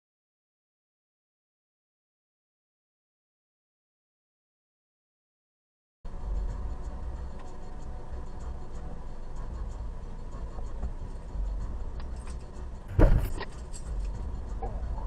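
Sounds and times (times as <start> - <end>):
car engine idling rumble: 6.2 - 15.0
sudden loud knock: 12.9 - 13.4.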